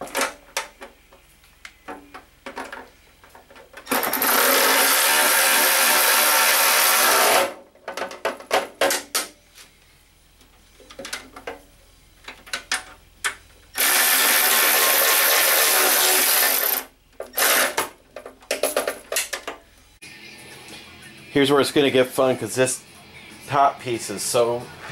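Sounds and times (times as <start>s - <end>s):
cordless drill driving a screw: 3.9s - 7.5s, 13.8s - 17.8s.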